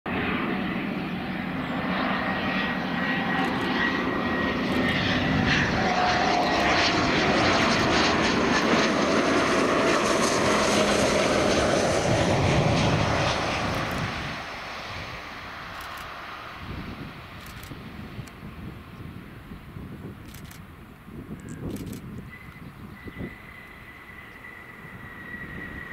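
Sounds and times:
jet engines whining: 0.1 - 25.9
low falling engine tone: 0.2 - 16.0.

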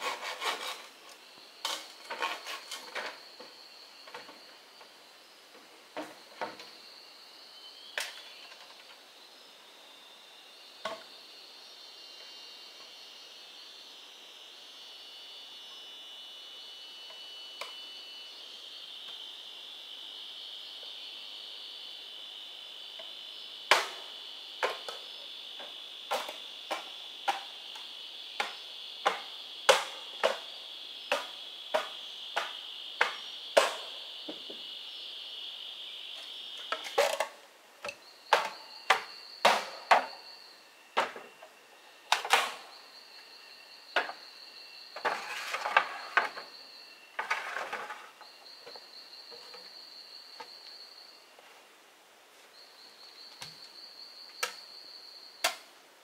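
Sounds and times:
rough scraping: 0.0 - 1.0
high-pitched insect buzz: 0.0 - 51.3
pulsing insect trill: 0.0 - 51.3, 52.5 - 55.7.

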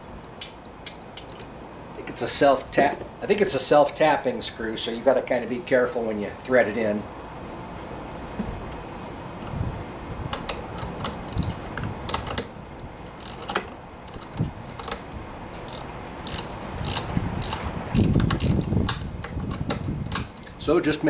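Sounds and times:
wrench ratchet clicks: 10.5 - 15.0, 15.7 - 20.4.

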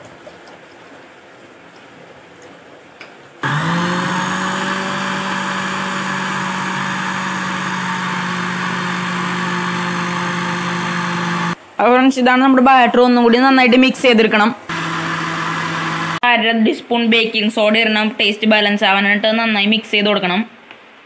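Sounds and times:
mixer-grinder motor hum and whine: 3.4 - 11.6, 14.7 - 16.2.

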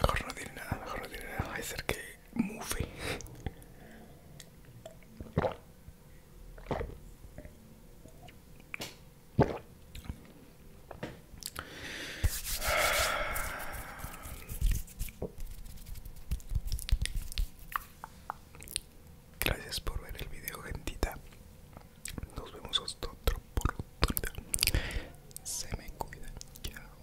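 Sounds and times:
wet mouth clicks: 11.4 - 11.7, 16.3 - 18.9, 23.6 - 26.8
rustling noise: 12.3 - 17.7.

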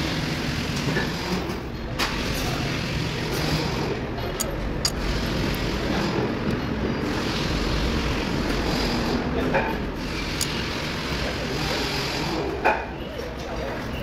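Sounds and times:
metallic wrench clicks: 4.4 - 5.0.

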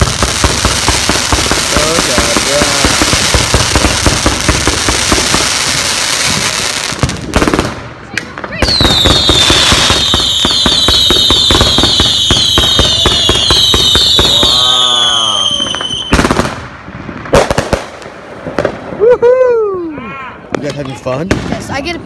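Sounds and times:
crackling firework pops: 0.0 - 14.4, 15.6 - 18.9
loud firework bangs: 0.0 - 19.0, 21.3 - 21.9
falling firework whistle: 8.6 - 16.3.

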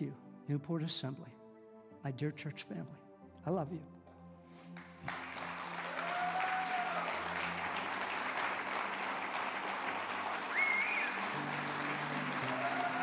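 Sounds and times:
soft low music: 0.0 - 13.0
congregation applauding: 4.8 - 13.0.

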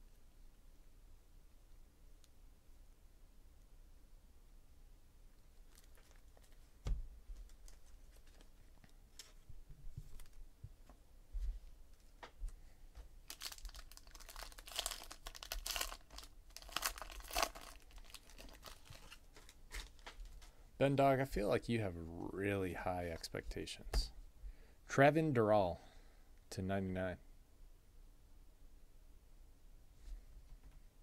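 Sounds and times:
foil wrapper crinkling and tearing: 5.6 - 6.8, 13.2 - 20.4.

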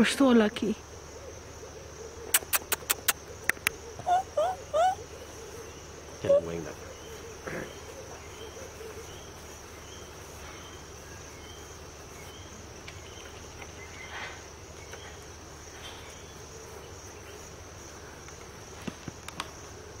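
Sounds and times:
insects trilling: 0.0 - 20.0
sharp clicks: 2.4 - 3.8.

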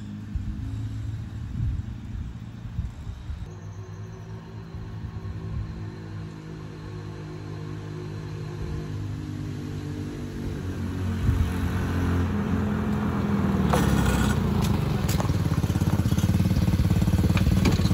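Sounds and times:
golf cart engine passing: 3.6 - 17.9.

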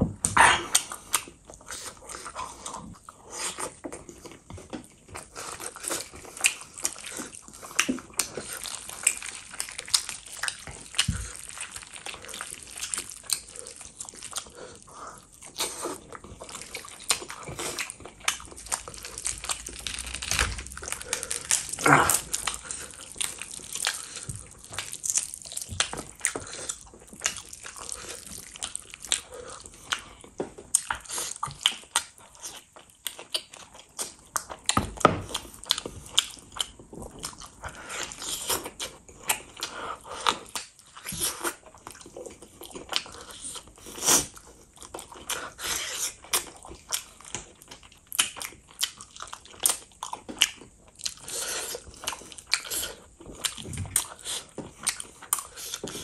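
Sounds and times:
wet chewing and lip smacks: 0.3 - 56.0.

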